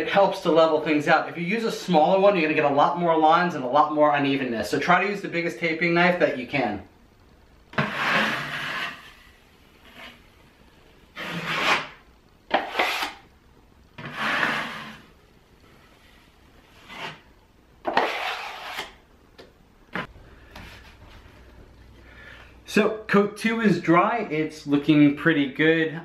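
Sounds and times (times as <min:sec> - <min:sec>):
taping knife scraping drywall: 0:07.8 - 0:10.3, 0:11.2 - 0:13.2, 0:14.0 - 0:15.1, 0:16.6 - 0:17.3, 0:17.9 - 0:19.0.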